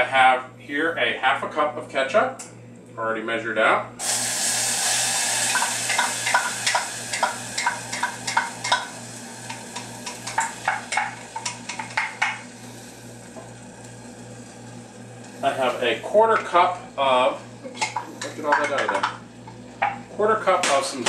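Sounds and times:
ketchup sizzling in hot pan: 4.0s - 20.1s.

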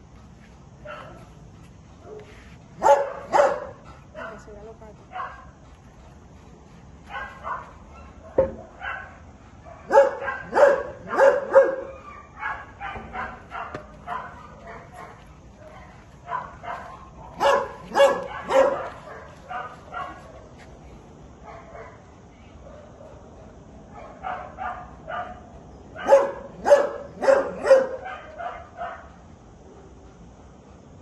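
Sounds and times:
dog barking: 0.8s - 1.2s, 2.1s - 4.5s, 5.1s - 5.5s, 7.1s - 20.4s, 23.9s - 25.4s, 26.0s - 29.1s.

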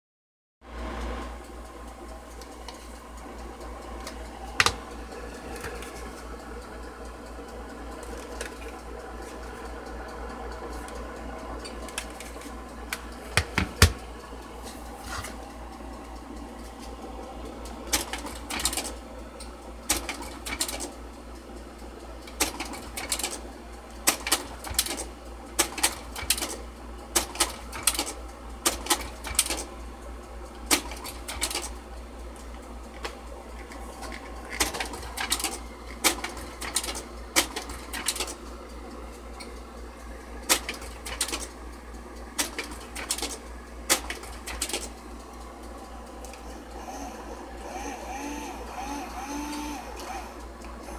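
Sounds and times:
steady low hum: 0.6s - 50.9s
slide projector mechanism clacking: 24.0s - 26.6s, 30.6s - 31.8s, 32.4s - 38.4s, 40.4s - 41.6s, 42.4s - 45.0s.

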